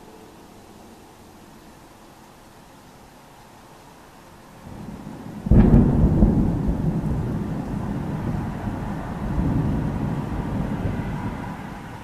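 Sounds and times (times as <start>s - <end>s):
thunder rumbling: 4.6s - 12.0s.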